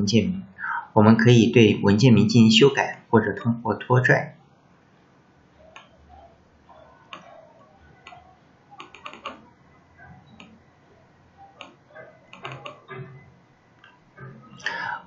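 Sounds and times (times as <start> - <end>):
computer mouse and keyboard clicks: 8.0 - 9.5, 11.6 - 14.5.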